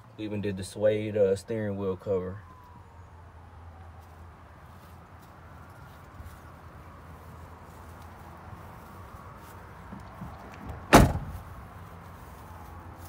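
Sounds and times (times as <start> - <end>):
truck door slamming: 9.9 - 11.5.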